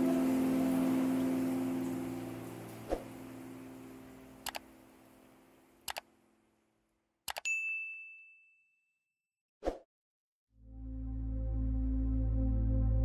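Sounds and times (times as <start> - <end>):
background music: 0.0 - 5.2, 10.6 - 13.0
notification bell ding: 7.3 - 8.9.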